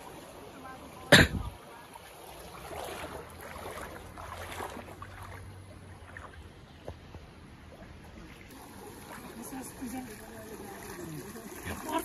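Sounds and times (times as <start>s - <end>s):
water sloshing and splashing: 0.0s - 12.0s
water trickling: 7.7s - 12.0s.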